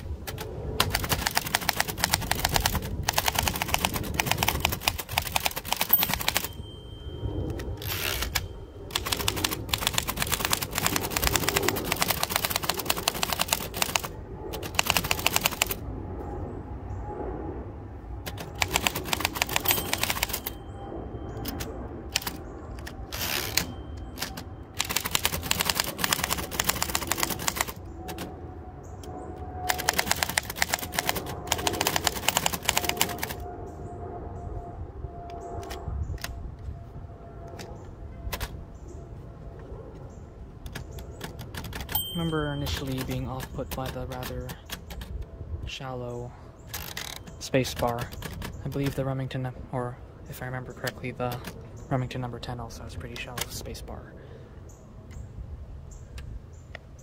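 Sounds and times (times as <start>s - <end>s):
typewriter key clatter: 0.3s - 6.6s, 7.8s - 15.8s, 18.3s - 20.6s, 22.2s - 28.2s, 29.7s - 33.4s, 42.6s - 45.1s, 46.7s - 49.0s.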